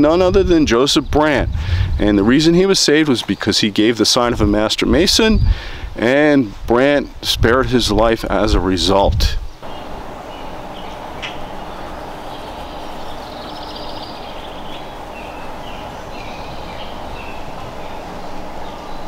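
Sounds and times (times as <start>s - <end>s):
low outdoor rumble: 7.3s - 19.0s
birds chirping faintly: 8.4s - 19.0s.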